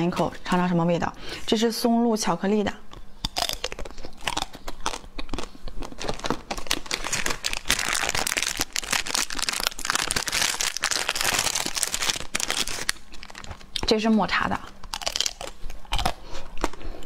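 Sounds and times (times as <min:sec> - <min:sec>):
plastic wrapper crinkling and tearing: 0:03.4 - 0:13.9, 0:14.8 - 0:16.8.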